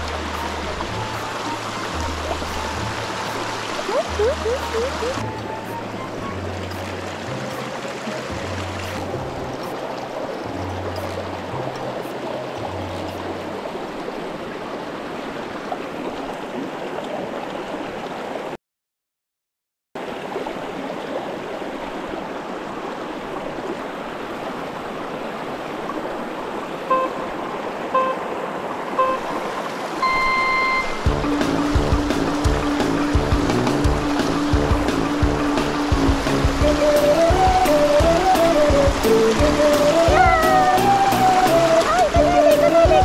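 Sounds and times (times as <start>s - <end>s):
stream rushing over rocks: 0.0s - 18.6s, 20.0s - 43.0s
longer electronic beep: 26.9s - 27.3s, 27.9s - 28.2s, 29.0s - 29.3s, 30.0s - 31.1s
short electronic beeps: 26.9s - 27.3s, 27.9s - 28.2s, 29.0s - 29.3s, 30.0s - 31.1s.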